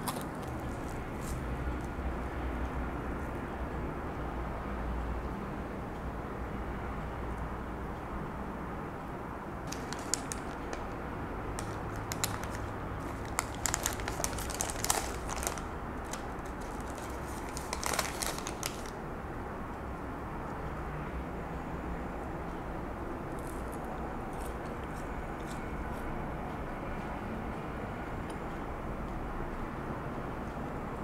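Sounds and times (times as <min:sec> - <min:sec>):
paper sleeve crinkling: 0:09.7 - 0:11.0, 0:11.6 - 0:19.0.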